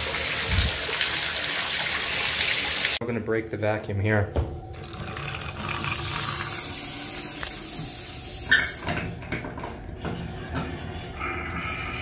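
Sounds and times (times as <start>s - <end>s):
faucet hissing with air: 5.1s - 8.9s.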